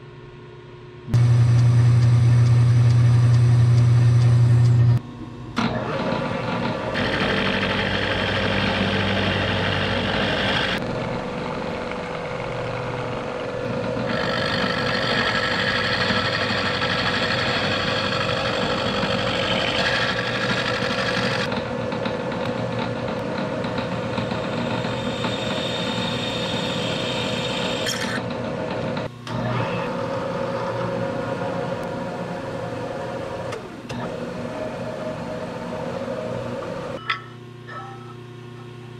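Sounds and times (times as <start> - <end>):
milling machine spindle running: 1.2 - 5.0, 5.6 - 37.0
end mill cutting aluminum: 5.6 - 21.6, 23.3 - 37.1
machine drilling into aluminum: 14.1 - 21.5.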